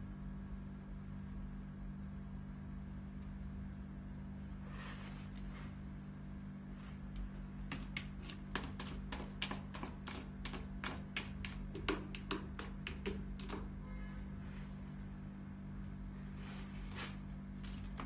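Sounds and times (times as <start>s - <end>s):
cat scratching in litter: 6.7s - 13.7s.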